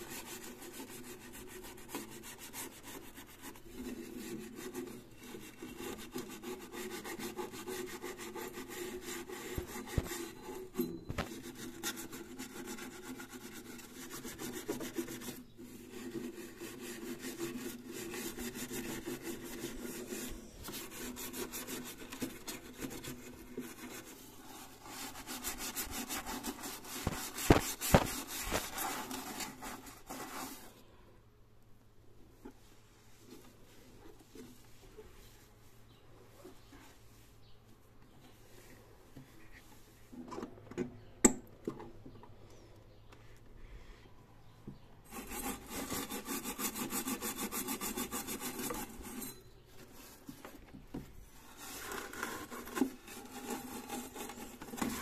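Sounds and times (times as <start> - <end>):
steel wool scrubbing metal: 0.0 - 30.7, 45.1 - 49.6.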